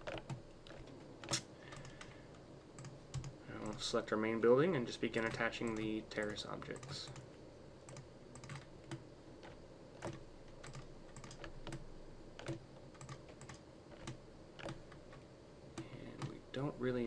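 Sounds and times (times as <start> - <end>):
computer mouse and keyboard clicks: 0.0 - 2.2, 2.8 - 3.8, 5.2 - 7.2, 7.9 - 11.8, 12.4 - 15.2
faint steady hiss: 0.0 - 17.0.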